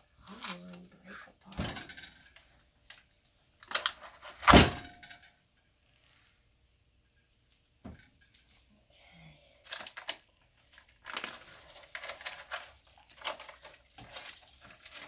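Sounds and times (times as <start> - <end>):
crackly rustling and scraping: 0.0 - 6.4, 9.6 - 15.0.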